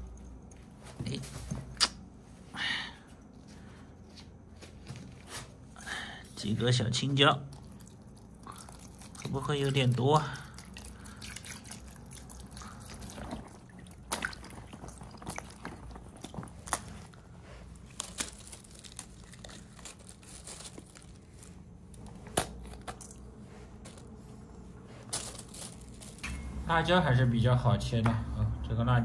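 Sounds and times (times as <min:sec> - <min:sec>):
peppers crunching: 0:07.5 - 0:24.2, 0:24.9 - 0:26.6.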